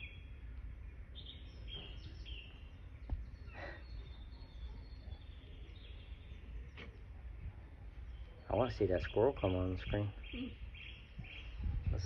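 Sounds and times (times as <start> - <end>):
birds chirping through speakers: 0.0 - 12.0
low steady hum: 0.0 - 12.0.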